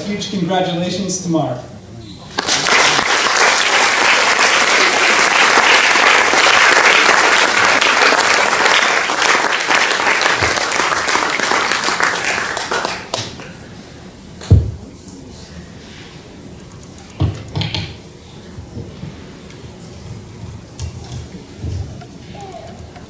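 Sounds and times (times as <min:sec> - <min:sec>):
audience applauding: 0:02.3 - 0:13.5.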